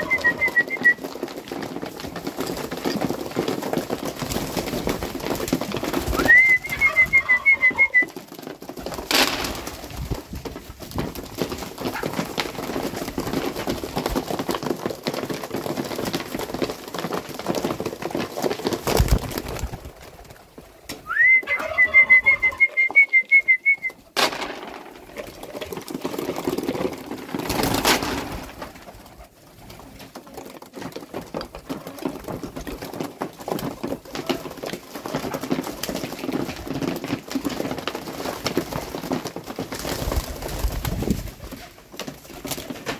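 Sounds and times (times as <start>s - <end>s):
pigeons cooing: 0.0s - 0.8s, 21.2s - 23.0s
high trilled whistle: 21.1s - 23.9s.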